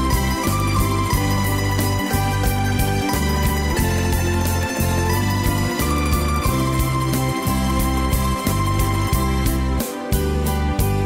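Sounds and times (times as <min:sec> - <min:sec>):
instrumental music with beat: 0:00.0 - 0:11.0.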